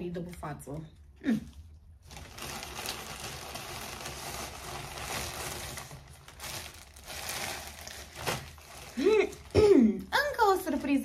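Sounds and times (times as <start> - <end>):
plastic packaging crinkling: 1.9 - 9.6.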